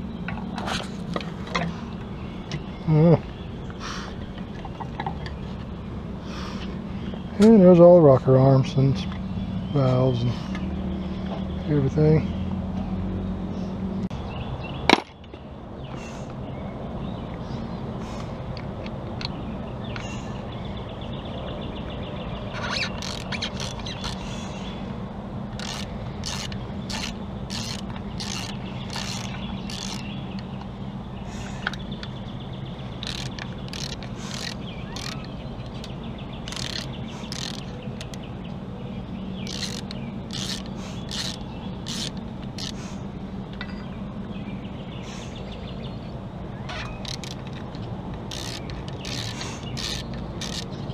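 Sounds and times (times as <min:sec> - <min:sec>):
socket ratchet clicking: 0:22.6 - 0:24.2, 0:25.5 - 0:30.7, 0:33.0 - 0:38.2, 0:39.4 - 0:42.8, 0:46.7 - 0:50.9.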